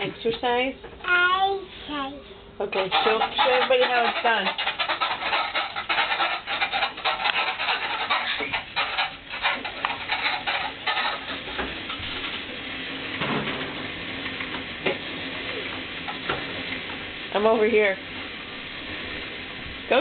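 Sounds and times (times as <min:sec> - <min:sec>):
elliptical trainer rattling and clicking: 0:02.7 - 0:12.0.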